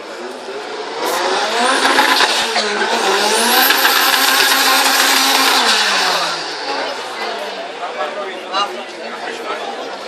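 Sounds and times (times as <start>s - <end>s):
racing car engine accelerating: 0.0s - 7.9s.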